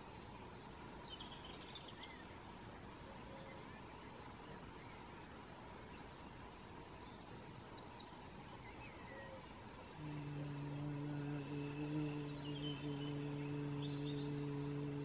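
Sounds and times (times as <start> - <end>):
woman humming one low note: 10.0 - 15.0.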